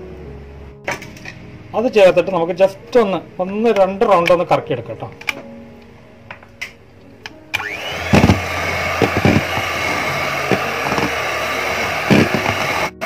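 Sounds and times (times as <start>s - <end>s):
electric hand mixer whining: 7.6s - 13.0s.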